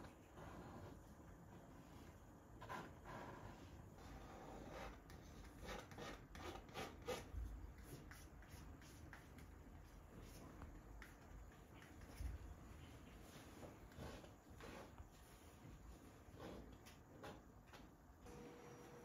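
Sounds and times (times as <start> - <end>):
painting knife scraping canvas: 2.6 - 12.4, 13.2 - 17.4.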